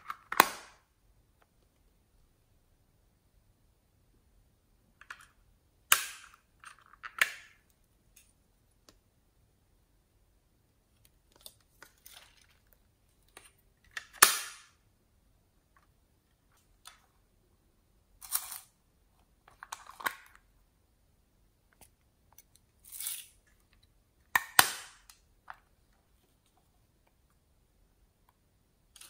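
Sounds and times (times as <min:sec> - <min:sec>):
hard plastic case snapping: 0:24.4 - 0:25.1.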